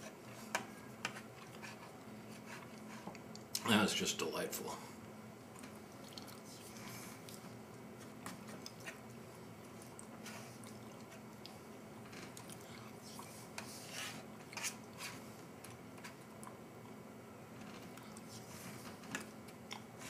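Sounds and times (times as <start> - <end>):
quiet chewing: 1.0 - 3.6, 5.5 - 13.7, 14.4 - 17.0, 17.7 - 20.0.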